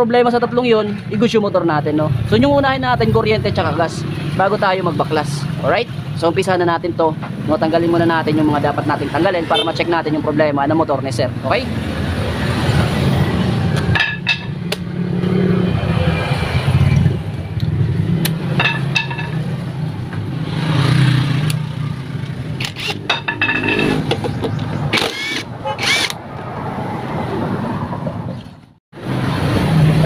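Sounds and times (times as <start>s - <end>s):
impact wrench hammering bolts: 22.6s - 24.3s, 24.9s - 26.2s.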